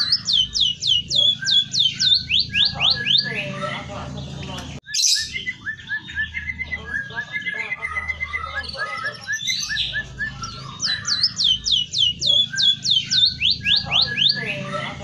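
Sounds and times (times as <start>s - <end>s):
bird chirping and whistling: 0.0s - 3.7s, 4.8s - 14.9s.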